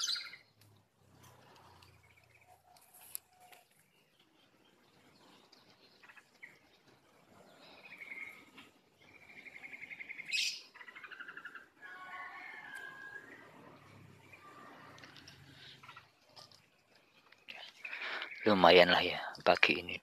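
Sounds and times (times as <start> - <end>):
songbird trilling: 0.0 - 0.5, 7.8 - 11.7.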